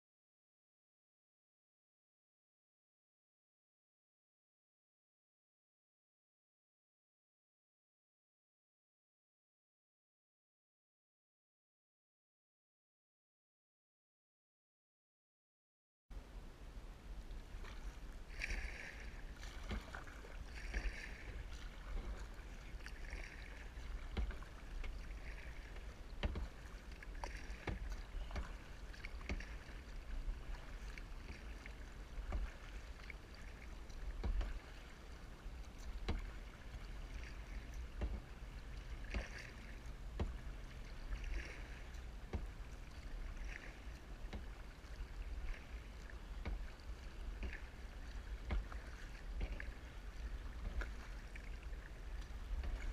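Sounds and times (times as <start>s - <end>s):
steady low rumble: 16.2s - 52.9s
paddle strokes splashing water: 17.0s - 52.9s
water dripping: 19.5s - 34.8s, 35.6s - 43.2s, 43.9s - 52.9s.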